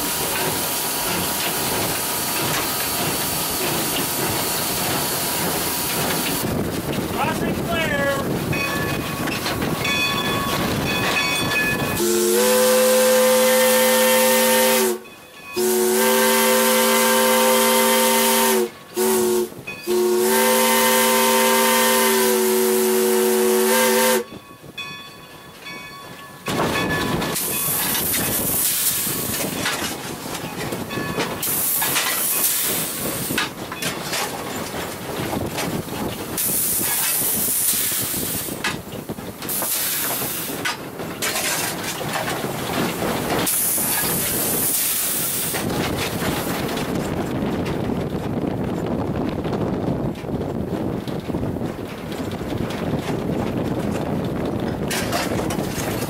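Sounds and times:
locomotive steam hissing: 0:00.0 - 0:09.8, 0:10.6 - 0:15.0, 0:15.6 - 0:24.3, 0:27.1 - 0:47.0
steam locomotive whistle blasts: 0:11.9 - 0:15.0, 0:15.6 - 0:24.4.

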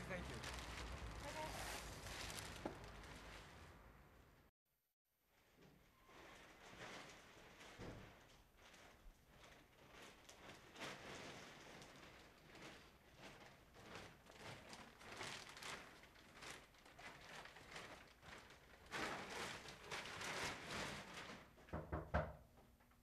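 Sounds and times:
faint city street noise: 0:00.0 - 0:04.5.

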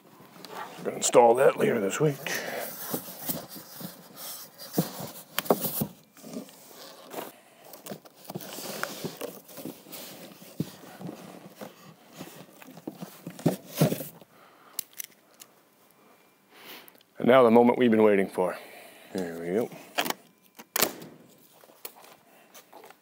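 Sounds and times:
cardboard flaps rustling: 0:02.6 - 0:14.2.

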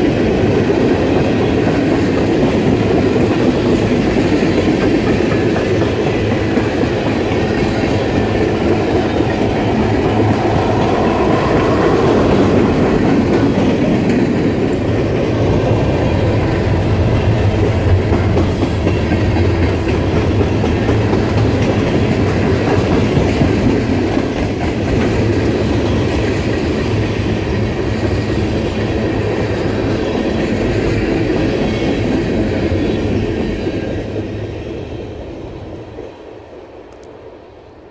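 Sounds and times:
train wheels rumbling on rails: 0:00.0 - 0:37.1.

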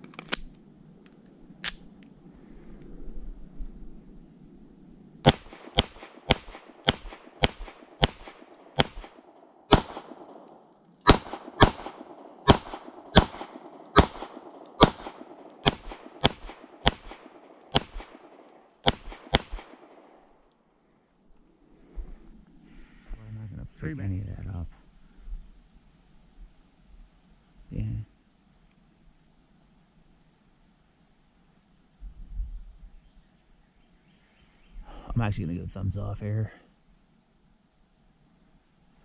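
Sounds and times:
pistol shots with echo: 0:05.2 - 0:20.3.

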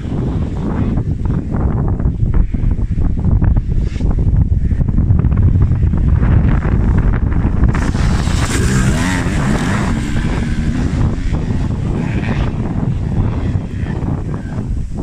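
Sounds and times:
wind buffeting microphone: 0:00.0 - 0:15.0
motocross bike engine revving: 0:05.6 - 0:15.0.

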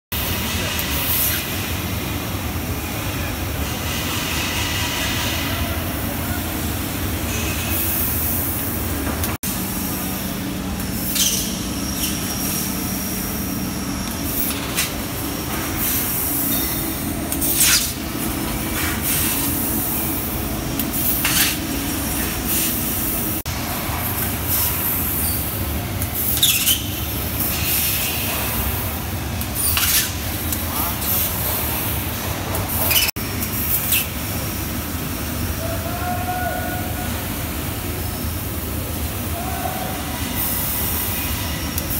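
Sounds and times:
laser cutting machine running: 0:00.2 - 0:26.3.

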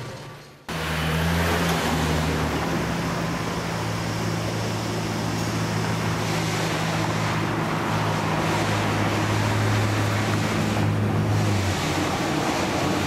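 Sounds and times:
low engine-like hum: 0:00.0 - 0:13.0
road traffic: 0:00.0 - 0:13.0
wind: 0:00.0 - 0:13.0.

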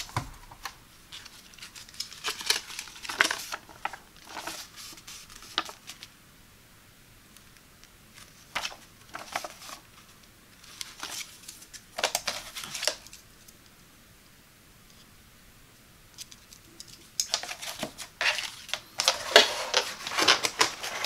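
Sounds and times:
paper leaflet rustling: 0:00.0 - 0:06.1, 0:08.1 - 0:13.2, 0:17.2 - 0:21.0.

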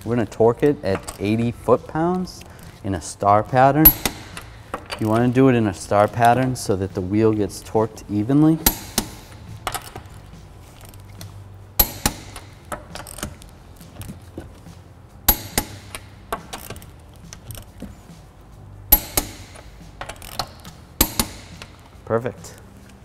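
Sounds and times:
socket and ratchet clinks: 0:00.6 - 0:01.6, 0:03.8 - 0:06.7, 0:08.5 - 0:14.5, 0:15.2 - 0:17.9, 0:18.9 - 0:22.0
torque wrench clicks: 0:18.9 - 0:22.0.

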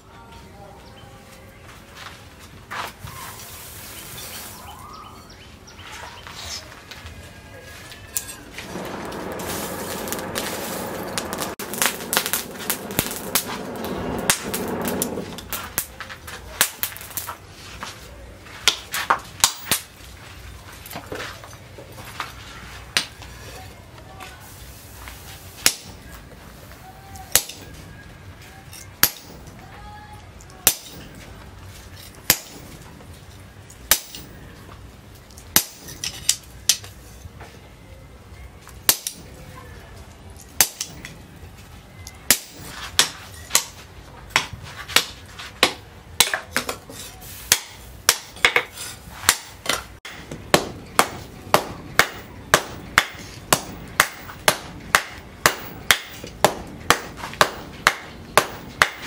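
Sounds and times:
hammer striking hot steel on anvil: 0:25.6 - 0:26.0, 0:27.3 - 0:27.7, 0:29.0 - 0:29.6, 0:30.6 - 0:31.2, 0:32.2 - 0:32.8, 0:33.9 - 0:34.3, 0:35.5 - 0:36.9, 0:38.9 - 0:39.3, 0:40.6 - 0:41.1, 0:42.3 - 0:59.0.

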